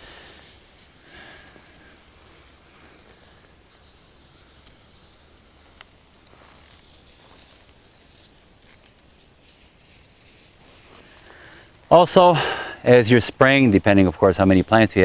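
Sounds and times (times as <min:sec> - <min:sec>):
garden sprayer hissing: 0:00.0 - 0:15.0.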